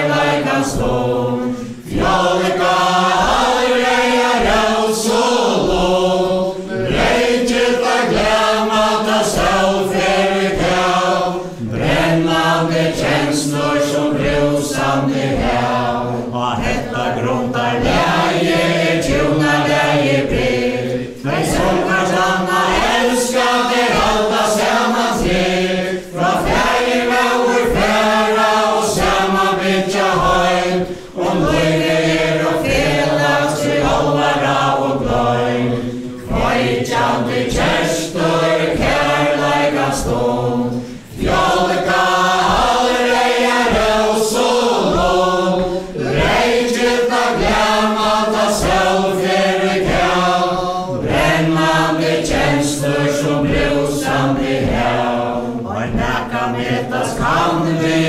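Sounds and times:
group singing in unison: 0.0s - 58.0s
dancers' feet beating: 41.1s - 50.2s.

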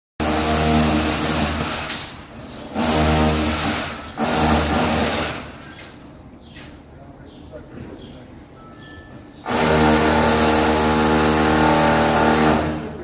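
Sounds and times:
power drill whining and grinding: 0.2s - 5.6s, 9.4s - 13.0s.

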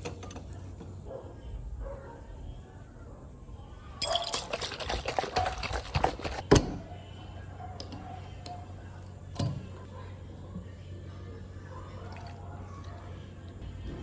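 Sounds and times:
glass bottle rattling: 4.0s - 6.4s.

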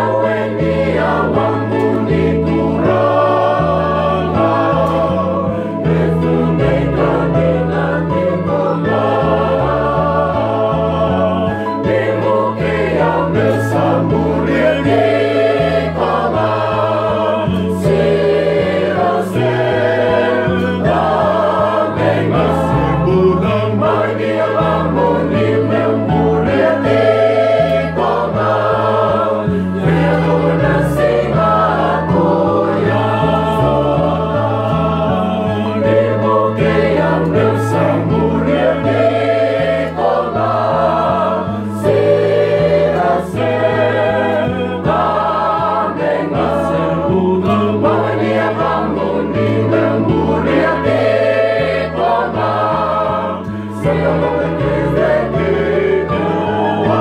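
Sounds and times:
children's choir singing: 0.0s - 57.0s.

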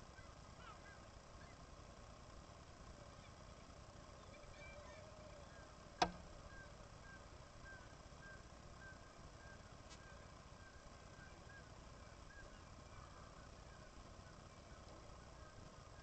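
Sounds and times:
sharp click: 6.0s - 6.3s
seabird colony calls: 6.4s - 16.0s.

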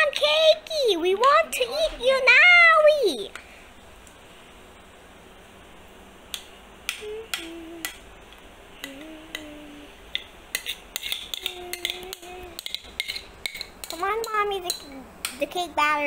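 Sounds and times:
spoon scraping a mixing bowl: 10.5s - 14.0s.

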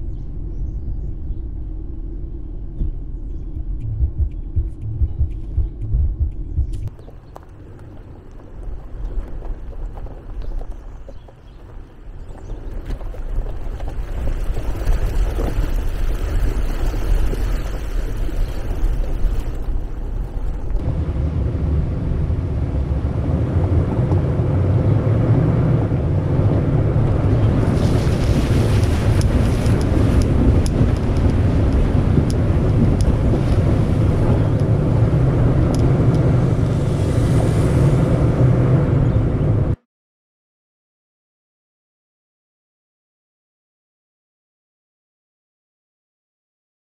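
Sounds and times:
car driving on gravel road: 6.7s - 39.8s.

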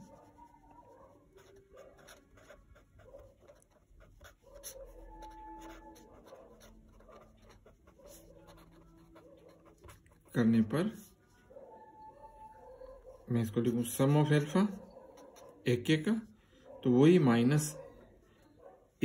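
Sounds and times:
pen scratching on paper: 0.0s - 11.1s, 13.1s - 15.7s.

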